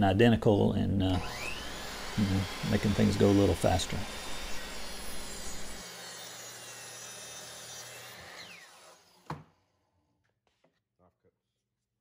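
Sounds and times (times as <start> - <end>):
saw blade spinning down whine: 1.1 - 9.2
miter saw cutting plywood: 1.1 - 9.6.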